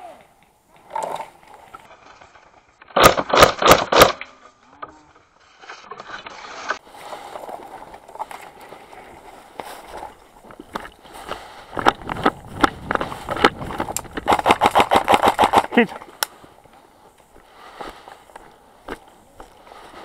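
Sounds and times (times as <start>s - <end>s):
airsoft rifle shots: 2.9s - 4.3s, 14.3s - 15.7s
rustling of dry grass and brush: 4.4s - 20.0s.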